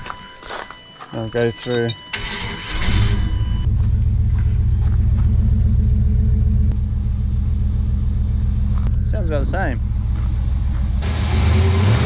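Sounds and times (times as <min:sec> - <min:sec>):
engine starting: 0:02.1 - 0:03.6
engine idling: 0:02.1 - 0:12.0.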